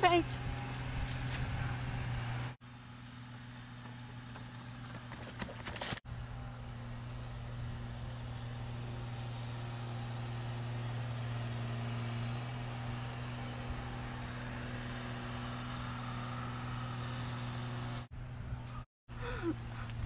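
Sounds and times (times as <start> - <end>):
low mechanical hum: 0.0 - 20.0
outdoor background noise: 0.0 - 20.0.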